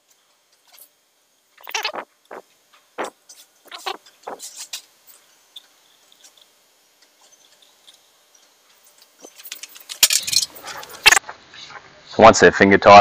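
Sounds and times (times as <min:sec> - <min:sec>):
metal bolts clicking and clinking: 0:09.2 - 0:11.0.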